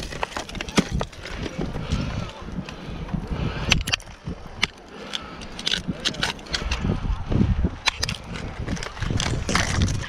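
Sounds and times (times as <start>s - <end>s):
ice axes striking ice: 0.0s - 1.6s, 3.7s - 6.8s, 7.9s - 10.0s
low rumble: 5.4s - 10.0s.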